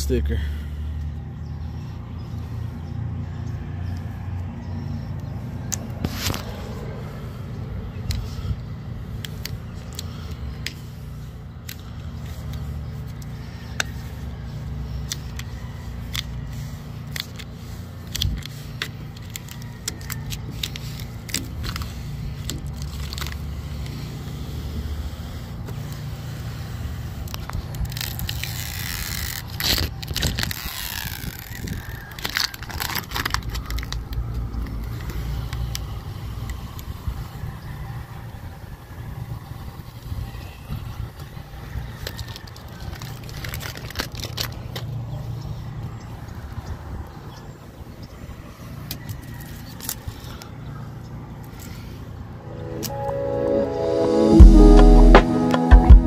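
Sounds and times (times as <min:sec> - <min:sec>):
steady low rumble: 0:00.6 - 0:15.3, 0:52.2 - 0:56.0
plastic film crackling: 0:17.0 - 0:23.9, 0:27.2 - 0:35.0, 0:42.0 - 0:45.0.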